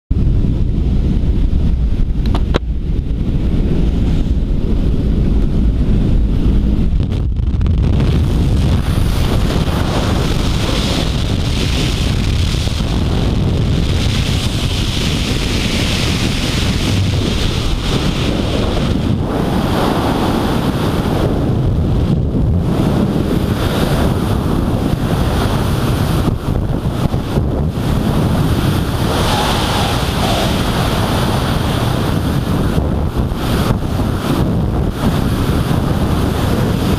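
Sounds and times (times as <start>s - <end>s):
plane engine rumbling: 0.1s - 36.9s
wind buffeting microphone: 0.1s - 36.9s.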